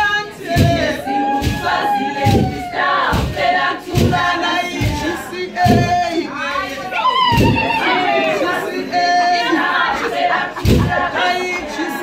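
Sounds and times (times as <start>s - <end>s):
women singing in chorus: 0.0s - 12.0s
low thud on the beat: 0.5s - 6.1s, 7.3s - 7.7s, 10.6s - 11.1s.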